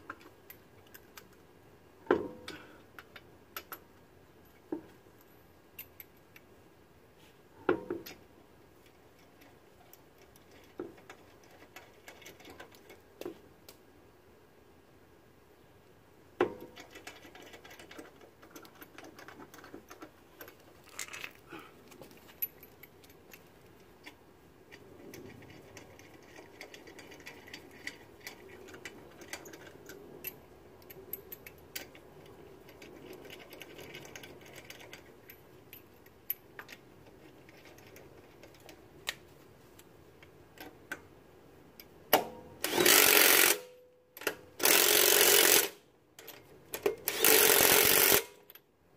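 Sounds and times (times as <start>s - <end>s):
lug nuts clicking and rattling: 16.4s - 21.4s, 22.0s - 39.2s
impact wrench bursts: 42.6s - 43.7s, 44.6s - 45.8s, 47.1s - 48.4s.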